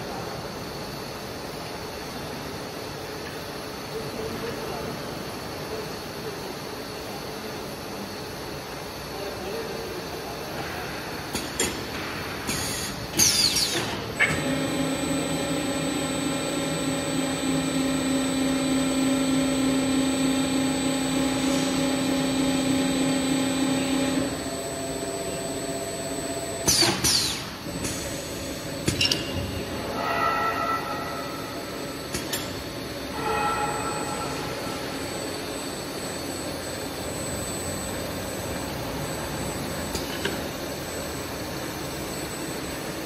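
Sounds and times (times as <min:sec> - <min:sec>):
machine hum with held tone: 0:12.7 - 0:43.0.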